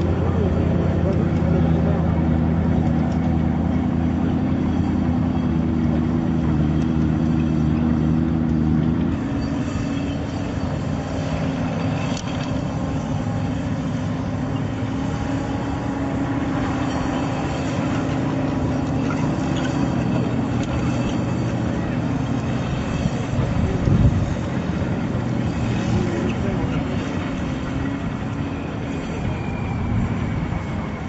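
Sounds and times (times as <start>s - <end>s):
tracked vehicle engine running: 0.0s - 31.0s.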